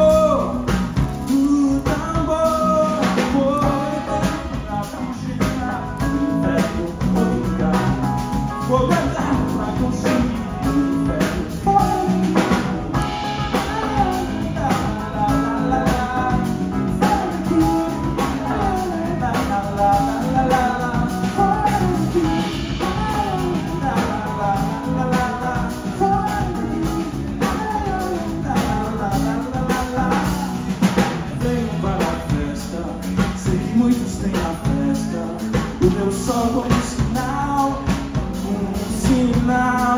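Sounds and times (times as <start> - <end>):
drum kit beat: 0.0 - 39.9
man singing: 0.0 - 39.9.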